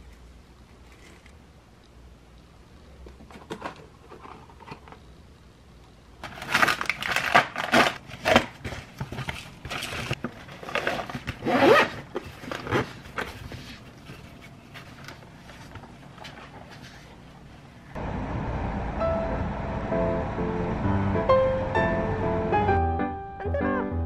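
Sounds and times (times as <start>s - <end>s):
plastic packets crinkling: 6.2s - 16.6s.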